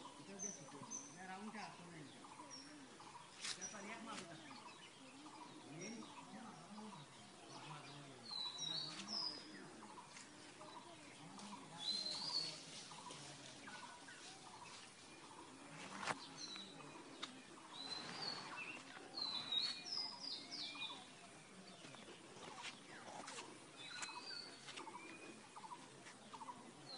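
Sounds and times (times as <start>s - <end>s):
birds chirping: 0.0s - 26.9s.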